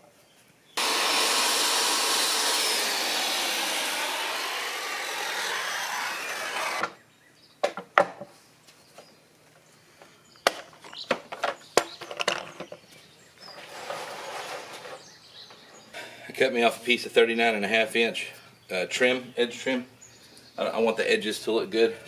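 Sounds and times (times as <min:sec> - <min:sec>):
circular saw cutting plastic: 0:00.8 - 0:07.0.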